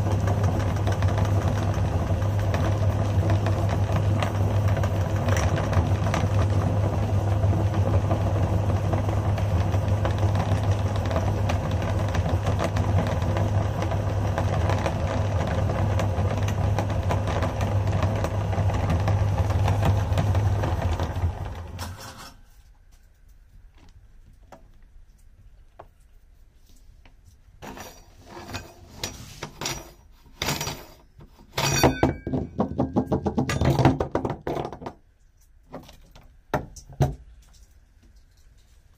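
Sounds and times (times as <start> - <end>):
meat grinder motor humming: 0.0 - 21.9
metal clanks and knocks: 27.6 - 35.0.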